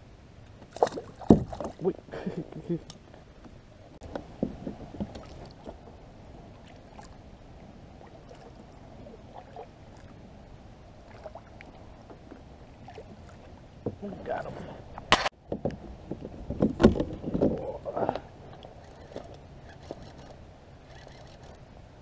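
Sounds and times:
paddle dipping in water: 0:00.6 - 0:17.6
paddle knocks: 0:00.8 - 0:01.8.

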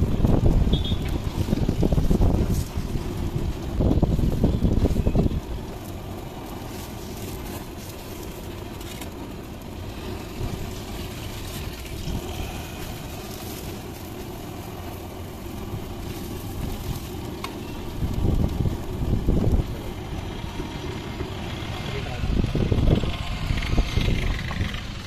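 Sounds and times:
wind on microphone: 0:00.0 - 0:06.7, 0:10.4 - 0:20.6, 0:22.2 - 0:25.0
bread sizzling on hot griddle: 0:00.0 - 0:23.8
passing traffic rumble: 0:00.0 - 0:25.0.

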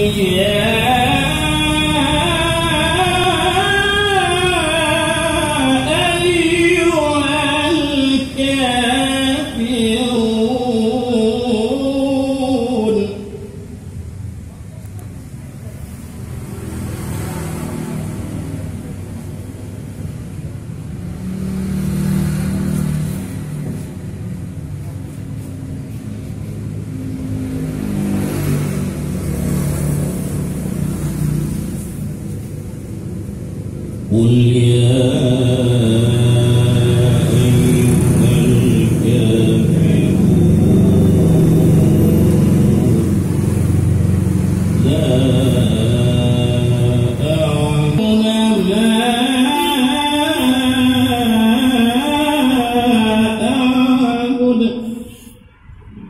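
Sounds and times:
man reciting melodically: 0:00.0 - 0:14.0, 0:33.7 - 0:55.4.

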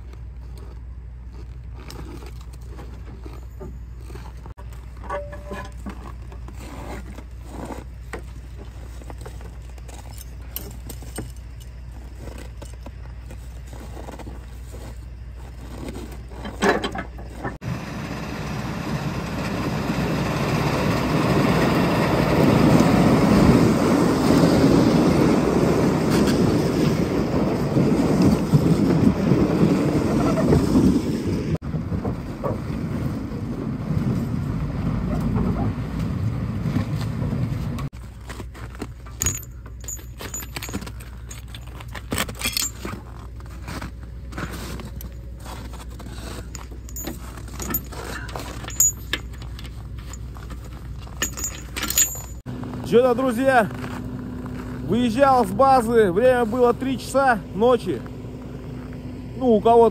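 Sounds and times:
clicks and scrapes: 0:00.0 - 0:17.6, 0:36.8 - 0:52.4
truck driving rushing noise: 0:17.6 - 0:37.9.

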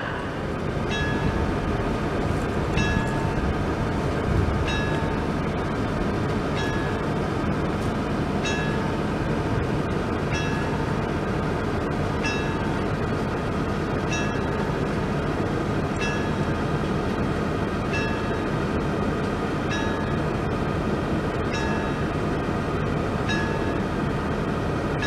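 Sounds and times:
level crossing warning bell: 0:00.0 - 0:01.4, 0:02.8 - 0:03.4, 0:04.7 - 0:05.4, 0:06.5 - 0:07.2, 0:08.4 - 0:09.0, 0:10.3 - 0:11.2, 0:12.2 - 0:12.9, 0:14.1 - 0:14.6, 0:16.0 - 0:16.6, 0:17.9 - 0:18.5, 0:19.7 - 0:20.2, 0:21.4 - 0:22.2, 0:23.2 - 0:23.9
steady rumbling noise: 0:00.0 - 0:25.0.

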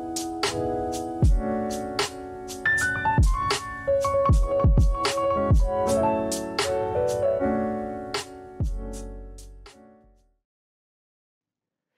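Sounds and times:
held keyboard chords: 0:00.0 - 0:10.2
drum beat with deep kicks: 0:01.2 - 0:01.5, 0:03.2 - 0:03.5, 0:04.3 - 0:05.8, 0:08.6 - 0:09.0.

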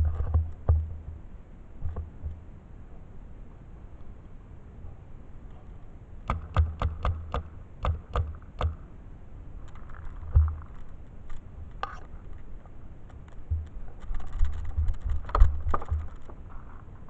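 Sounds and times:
paintball markers firing: 0:06.3 - 0:08.8.

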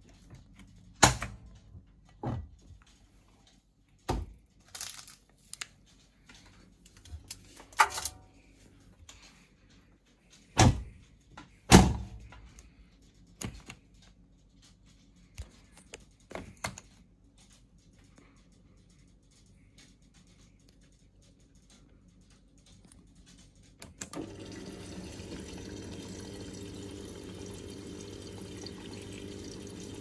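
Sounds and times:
washing machine door clunks: 0:10.6 - 0:10.9, 0:11.7 - 0:12.2.

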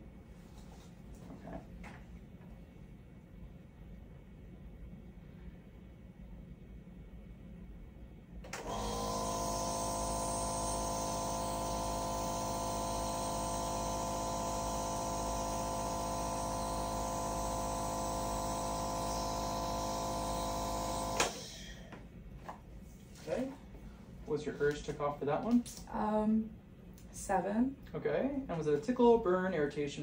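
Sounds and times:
nebulizer machine humming: 0:08.4 - 0:22.4.

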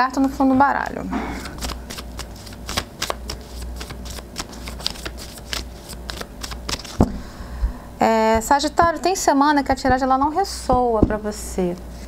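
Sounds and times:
cards being shuffled: 0:00.8 - 0:07.1.

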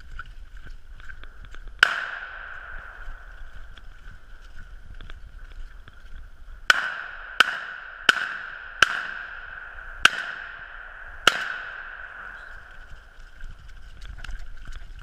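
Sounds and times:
shotgun shots with echo: 0:01.8 - 0:03.3, 0:06.7 - 0:12.7.

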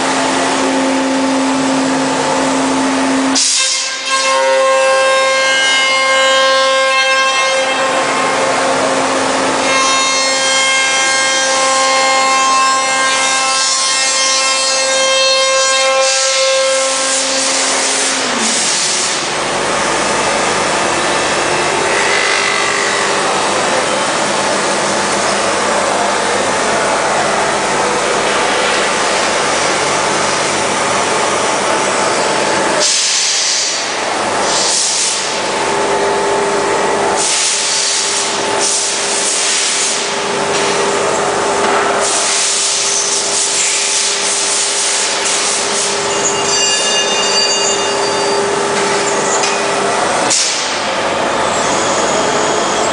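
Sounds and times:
machine spindle whine: 0:00.0 - 0:52.9
sanding tool rubbing hiss: 0:15.9 - 0:19.3.

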